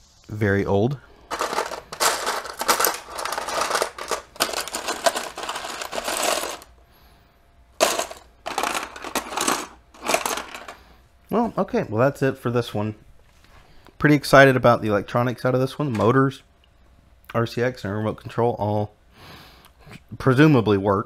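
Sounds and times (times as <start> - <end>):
plastic bricks clattering in tray: 1.3 - 6.7, 7.8 - 10.8.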